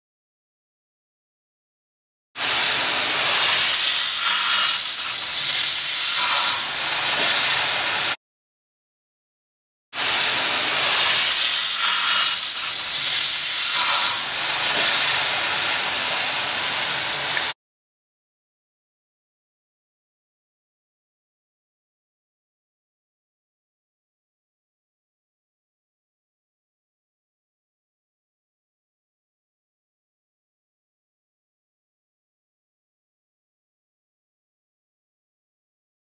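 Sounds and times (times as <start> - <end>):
compressed air duster hissing: 2.4 - 8.2, 10.0 - 17.6.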